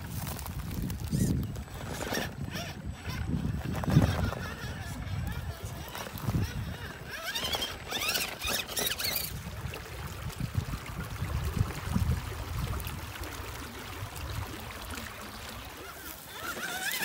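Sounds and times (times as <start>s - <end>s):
shallow creek flowing: 0.0s - 17.0s
electric motor whining: 0.2s - 9.5s, 15.6s - 17.0s.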